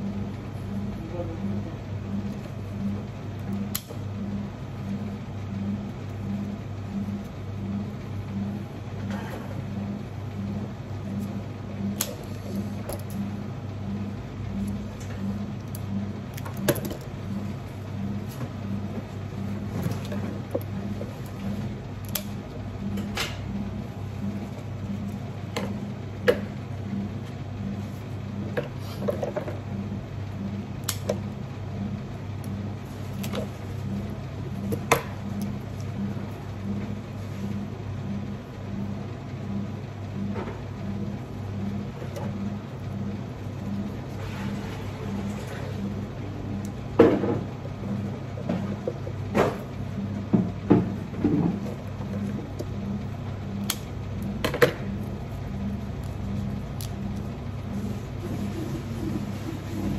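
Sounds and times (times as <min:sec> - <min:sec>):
pulsing low machine hum: 0:00.0 - 0:59.9.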